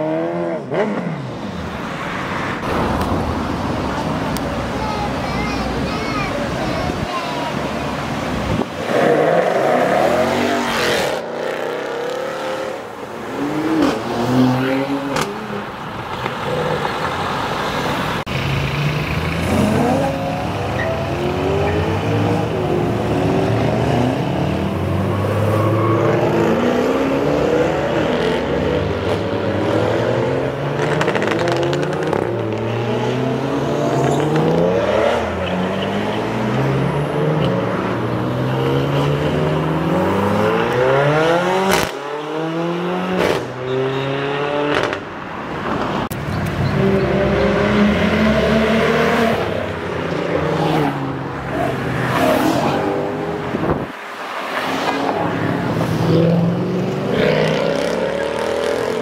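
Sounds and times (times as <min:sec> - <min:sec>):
sports car engines accelerating: 0:18.0 - 0:45.1, 0:45.7 - 0:59.0.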